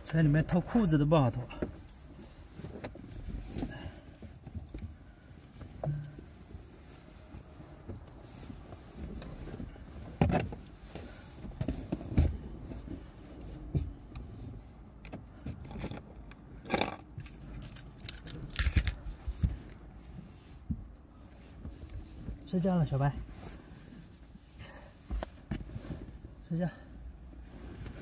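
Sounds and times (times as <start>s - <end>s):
clothes and quilts rustling: 0.1s - 14.9s, 19.0s - 28.0s
knocks and bumps in car: 9.0s - 14.4s.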